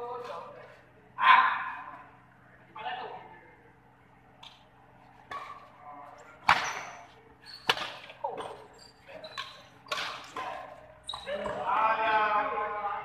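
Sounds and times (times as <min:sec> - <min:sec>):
racket hitting shuttlecock: 0:05.2 - 0:05.7, 0:06.4 - 0:08.6, 0:09.4 - 0:11.6
players' voices: 0:08.0 - 0:13.0.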